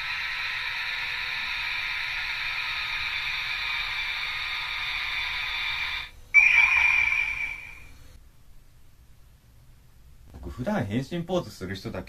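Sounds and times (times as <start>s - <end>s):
loud burst with high ringing tone: 0.0s - 8.2s
toy hissing whoosh with electronic tones: 0.0s - 8.2s.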